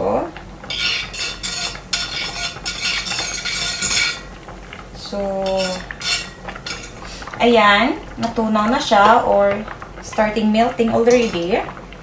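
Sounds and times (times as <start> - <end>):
utensil scraping a steel pot: 0.6 - 7.6.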